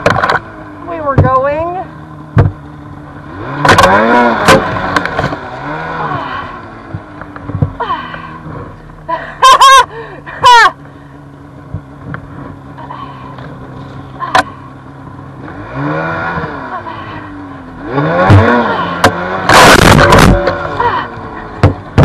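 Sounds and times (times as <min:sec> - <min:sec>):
snowmobile engine revving: 0:03.0 - 0:07.1, 0:14.2 - 0:22.0.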